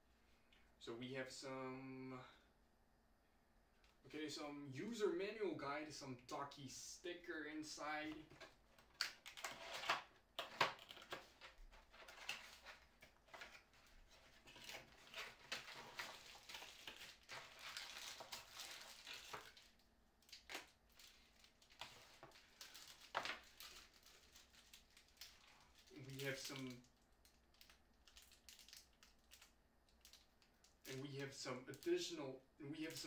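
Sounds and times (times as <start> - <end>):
cardboard rustling and scraping: 9.3 - 19.6.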